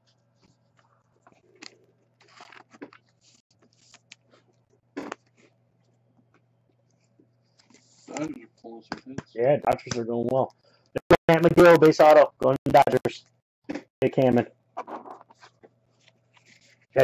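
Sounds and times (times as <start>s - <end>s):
trading cards rustling: 1.2s - 4.5s.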